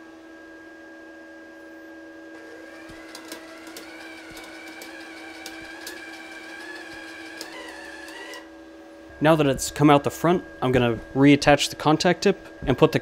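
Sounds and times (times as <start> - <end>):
steady low hum: 0.0 - 13.0
wire-feed motor whining: 2.3 - 8.6.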